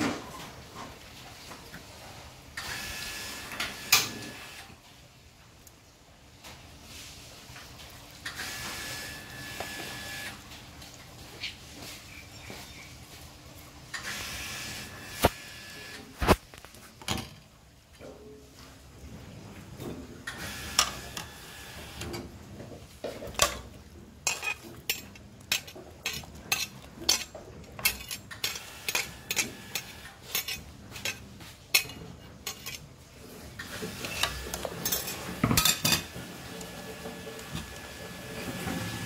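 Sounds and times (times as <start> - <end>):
metal ladle clinking on pot: 24.2 - 32.8.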